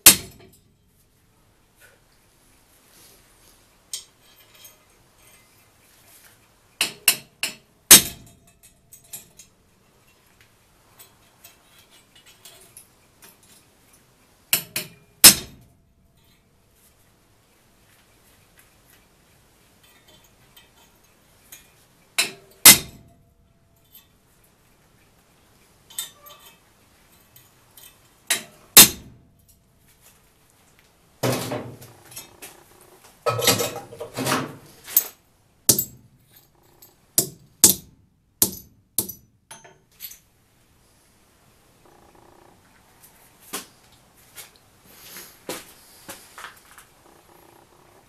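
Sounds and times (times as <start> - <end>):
hammer striking steel on anvil: 0.0 - 0.6, 14.6 - 15.6, 22.2 - 23.1, 35.7 - 36.1, 37.2 - 39.8
metal clattering: 31.2 - 37.8.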